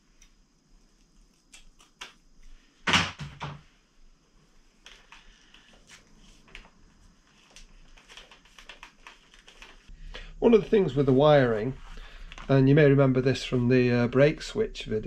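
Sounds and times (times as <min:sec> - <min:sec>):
tape crinkling: 0:04.8 - 0:09.9.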